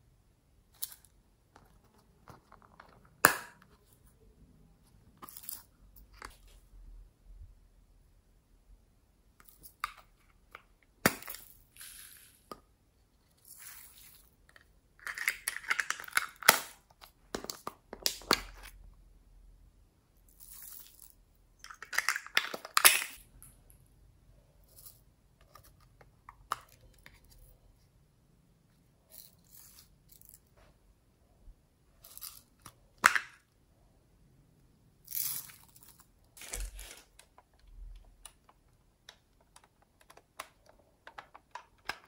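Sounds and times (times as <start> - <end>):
plastic cases clicking and snapping: 36.4 - 42.0.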